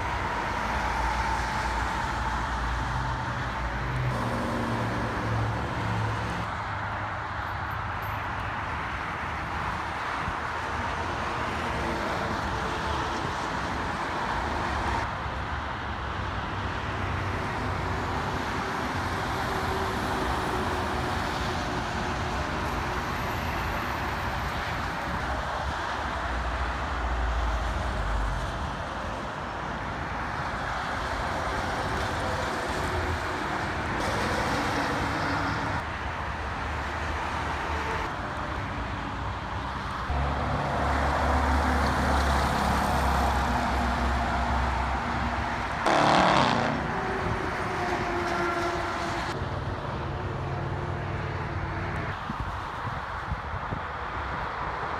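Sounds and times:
tyre noise from passing vehicles: 16.3 - 54.6.

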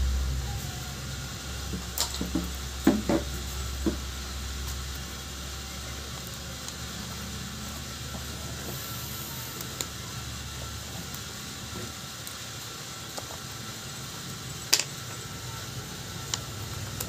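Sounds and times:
low hum: 0.0 - 5.6.

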